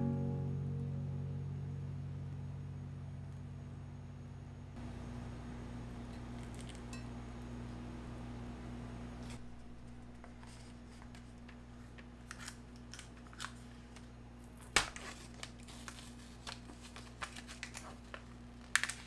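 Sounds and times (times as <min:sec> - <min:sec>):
paper wrapper crinkling: 0:10.4 - 0:19.0.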